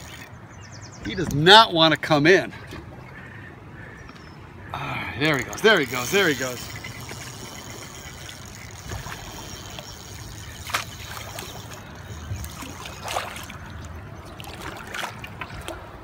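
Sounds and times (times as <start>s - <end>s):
fish thrashing water splashing: 5.5s - 15.9s.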